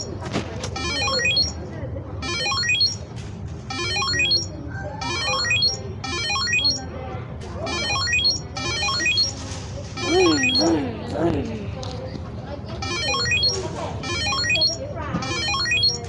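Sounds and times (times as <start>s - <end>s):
faint voices: 0.0s - 16.0s
looped electronic chime music: 0.8s - 1.6s, 2.2s - 3.0s, 3.7s - 6.8s, 7.8s - 9.3s, 10.0s - 10.7s, 12.8s - 16.0s.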